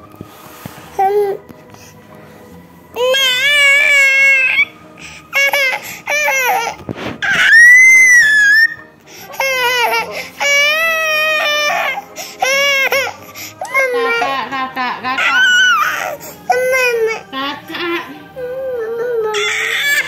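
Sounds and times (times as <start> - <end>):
toddler crying: 3.0 - 14.4, 15.2 - 17.3, 18.4 - 20.0
toddler screaming: 6.3 - 8.8, 15.2 - 16.1.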